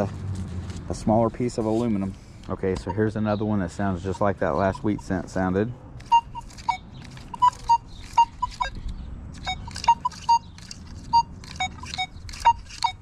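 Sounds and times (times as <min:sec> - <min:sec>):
metal detector beeps: 0:04.0 - 0:05.2, 0:06.0 - 0:08.8, 0:09.4 - 0:13.0
sharp clicks: 0:06.0 - 0:13.0.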